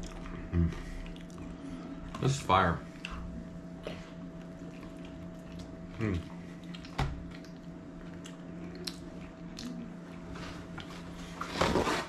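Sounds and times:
person chewing food: 0:00.0 - 0:02.2, 0:02.9 - 0:11.4
steady low hum: 0:00.0 - 0:12.0
wet mouth clicks: 0:06.6 - 0:09.9.

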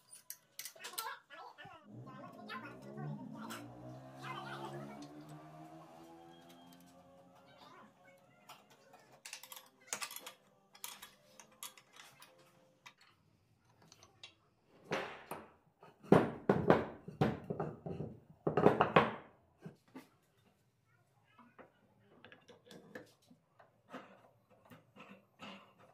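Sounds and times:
metal clicks and clinks: 0:00.0 - 0:01.1, 0:08.5 - 0:14.4
wooden blocks knocking and scraping: 0:13.8 - 0:20.1.

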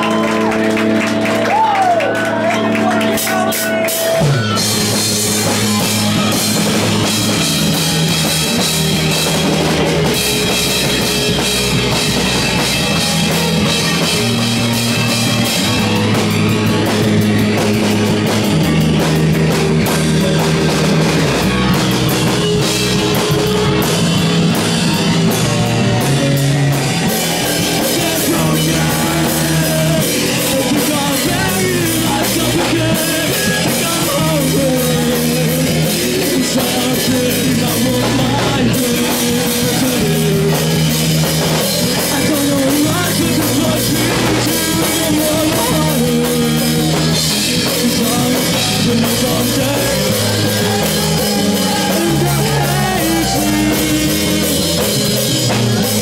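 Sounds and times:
rock band playing live: 0:00.0 - 0:56.0.

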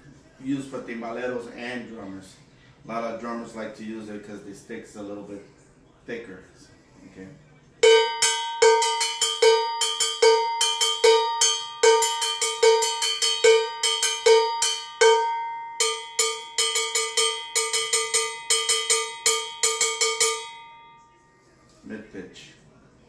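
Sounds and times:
cowbell struck with drumstick: 0:07.8 - 0:21.1.

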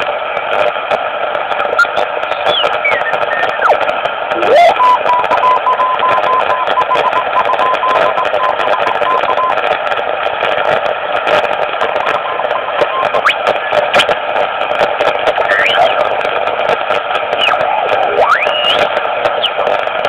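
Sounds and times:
shortwave radio hiss: 0:00.0 - 0:20.0
static crackles: 0:00.0 - 0:20.0
heterodyne whistle: 0:01.8 - 0:03.8, 0:15.5 - 0:16.0, 0:17.4 - 0:19.6.

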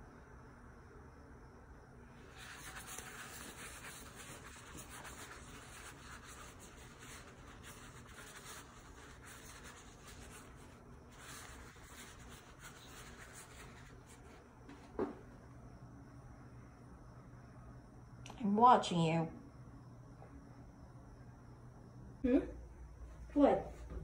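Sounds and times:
toilet paper roll rustling: 0:02.3 - 0:15.1.

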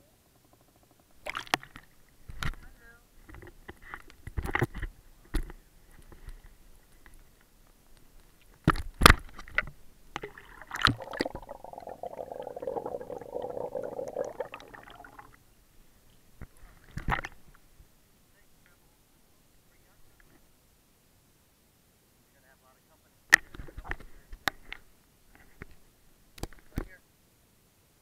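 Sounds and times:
water sloshing and gurgling: 0:09.4 - 0:15.4.

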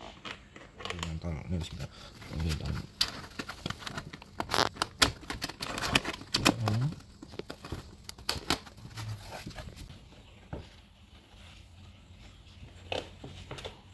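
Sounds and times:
plastic clicking and crinkling: 0:00.0 - 0:09.0.

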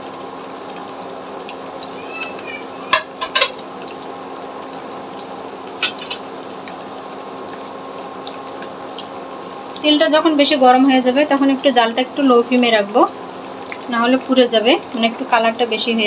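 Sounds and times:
food sizzling in hot oil: 0:00.0 - 0:16.0
utensil knocking against pan: 0:02.9 - 0:03.6.

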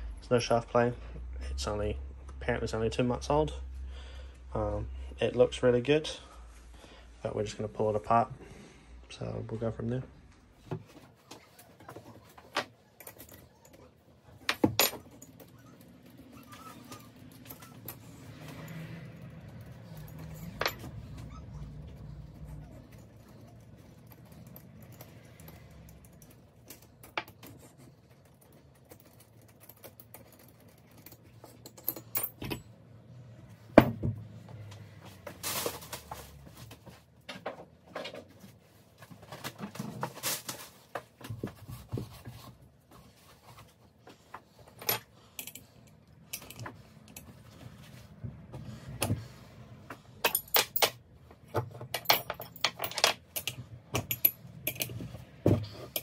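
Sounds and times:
metal clinks and clatter: 0:12.0 - 0:32.9, 0:44.6 - 0:47.8, 0:50.1 - 0:56.0.

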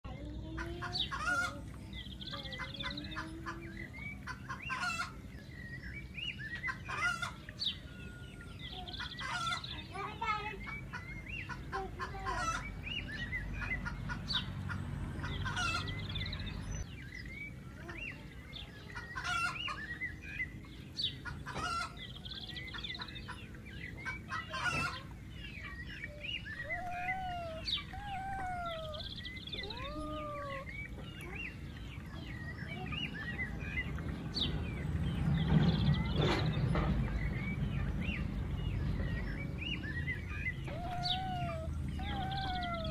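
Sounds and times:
small birds chirping: 0:00.0 - 0:42.9
chickens clucking: 0:00.1 - 0:05.6, 0:06.5 - 0:16.9, 0:17.8 - 0:42.9.

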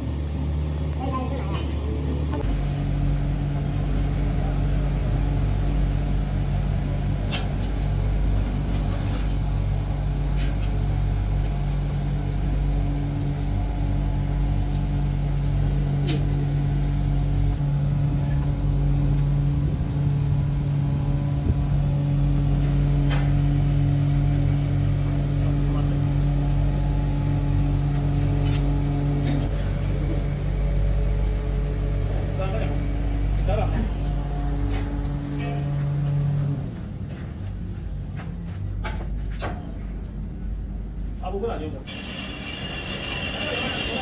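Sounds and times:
workshop machinery hum: 0:00.0 - 0:44.0.

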